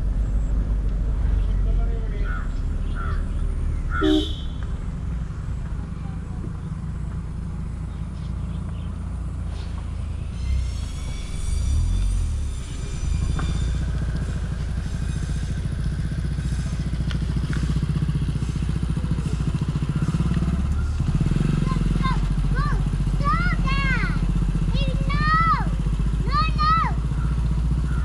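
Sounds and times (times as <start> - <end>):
motorcycle engines rumbling: 0.0 - 28.0
thin high whine: 9.5 - 17.0.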